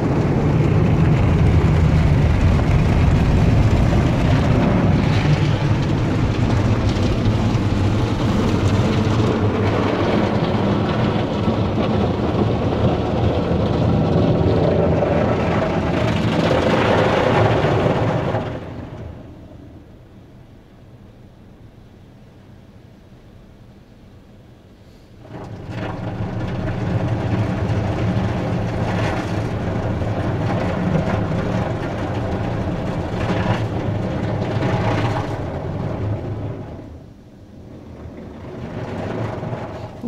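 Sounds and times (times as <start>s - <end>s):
water spraying on car body: 0.0s - 19.2s.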